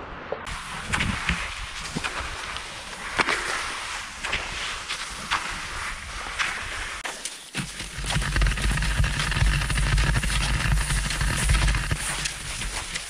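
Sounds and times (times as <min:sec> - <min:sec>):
low rumble of wind on microphone: 0:00.0 - 0:07.0, 0:08.0 - 0:13.0
skis scraping over slushy snow: 0:00.5 - 0:13.0
ski pole clicks: 0:06.4 - 0:13.0.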